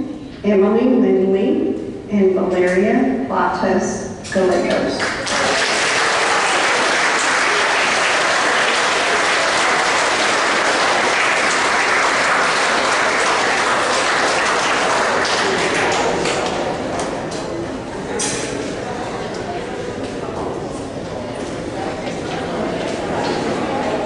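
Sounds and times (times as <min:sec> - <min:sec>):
audience applauding: 0:05.0 - 0:17.6.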